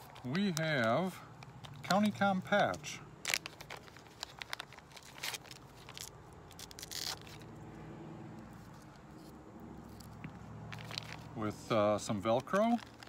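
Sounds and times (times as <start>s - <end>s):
plastic bag crinkling: 0.0s - 7.6s, 10.7s - 13.0s.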